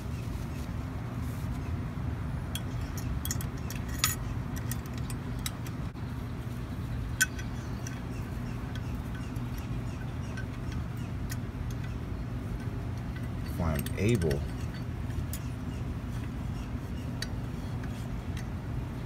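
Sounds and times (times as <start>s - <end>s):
steady low hum: 0.0s - 19.0s
light metal clicks and taps: 2.5s - 5.8s, 7.2s - 15.5s, 17.2s - 18.6s.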